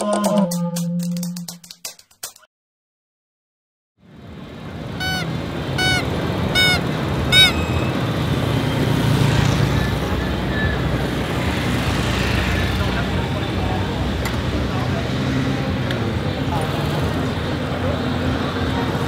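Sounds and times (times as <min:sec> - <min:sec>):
road traffic and engine noise: 0:04.0 - 0:19.0
high squeaky chirps: 0:05.0 - 0:08.2.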